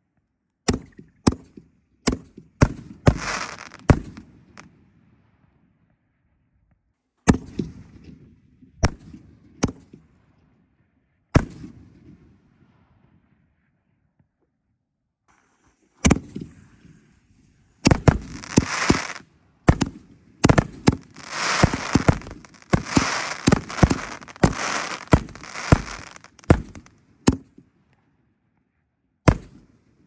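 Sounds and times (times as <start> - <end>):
firework launch report: 2.6 - 4.7, 15.3 - 27.6
firework crackling: 3.1 - 4.6, 17.8 - 26.9.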